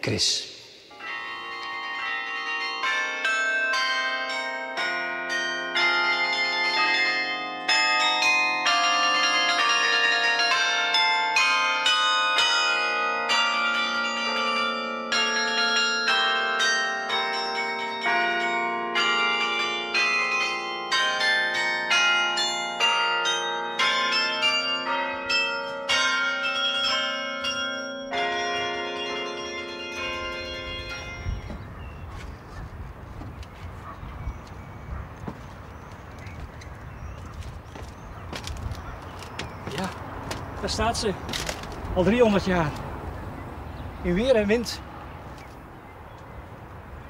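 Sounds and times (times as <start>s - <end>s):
carillon bells playing a tune: 0.9s - 32.0s.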